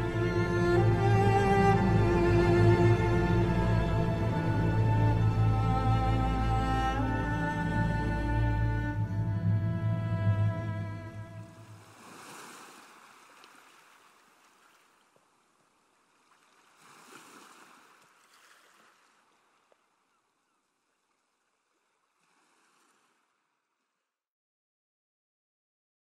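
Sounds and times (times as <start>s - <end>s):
string music: 0.0s - 12.3s
sea waves washing in: 11.4s - 14.8s, 16.3s - 19.1s, 22.2s - 23.2s.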